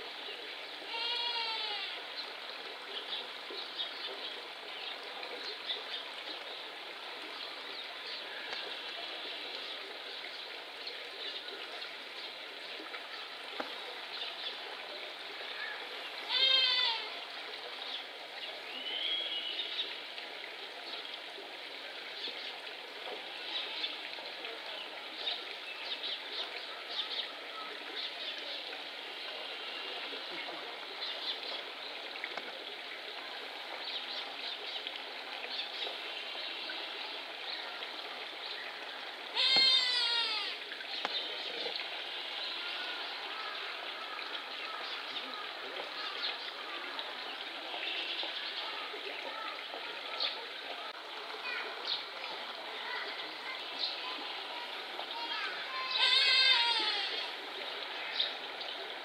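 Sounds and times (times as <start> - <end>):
goat-like bleats: 0.9 - 2.0, 16.3 - 17.2, 39.3 - 40.6, 55.8 - 57.3.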